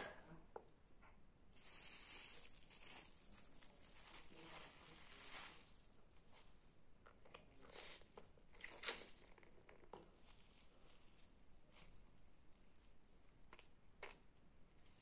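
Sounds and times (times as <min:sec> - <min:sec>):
plastic bag crinkling: 0:01.6 - 0:06.6, 0:08.6 - 0:12.9.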